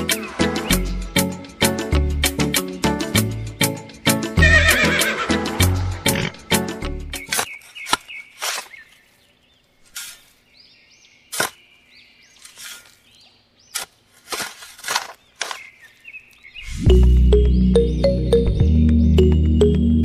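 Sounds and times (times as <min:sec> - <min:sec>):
shovel digging in sand: 0:07.2 - 0:09.1, 0:09.8 - 0:10.4, 0:11.3 - 0:16.0.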